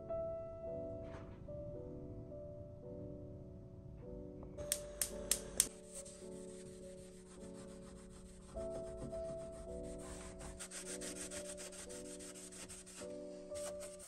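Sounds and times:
background music: 0.0 - 14.0
gas hob igniter clicking: 4.7 - 5.7.

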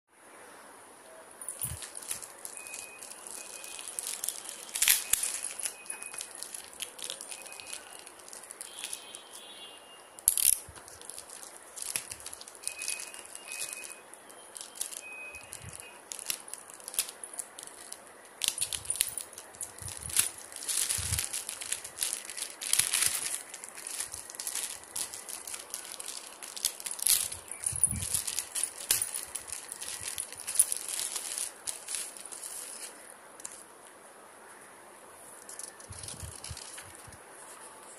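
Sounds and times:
plastic bag crinkling: 1.4 - 9.6, 10.2 - 33.6, 35.5 - 37.2.

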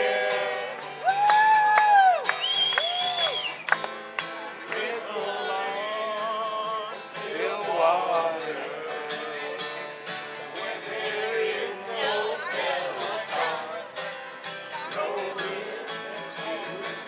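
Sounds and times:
acoustic guitar strumming: 0.0 - 17.0
man singing: 4.6 - 9.9, 14.8 - 17.0.

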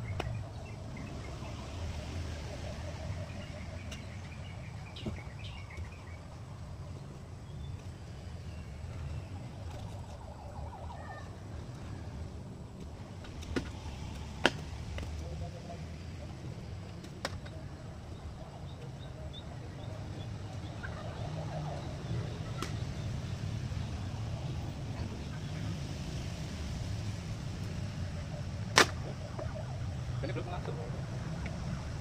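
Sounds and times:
faint high chirps: 0.0 - 12.4
low outdoor rumble: 0.0 - 32.0.

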